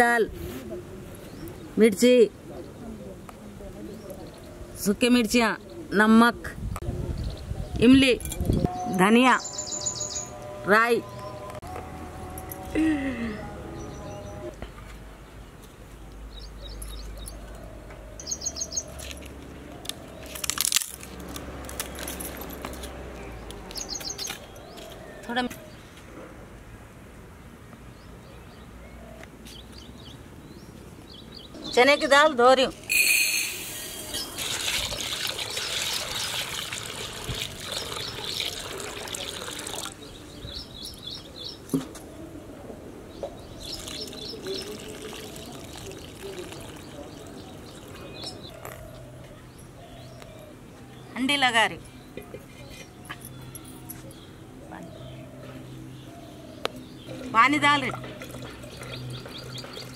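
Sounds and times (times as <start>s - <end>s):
small birds chirping: 7.1s - 10.4s, 21.9s - 26.0s, 43.1s - 59.9s
bird chirping: 8.6s - 11.6s, 16.3s - 19.1s, 52.8s - 59.9s
water pouring into a glass bowl: 34.1s - 40.0s, 43.8s - 47.3s
water sloshing in a bowl: 34.2s - 40.0s, 43.8s - 48.0s, 57.2s - 59.9s.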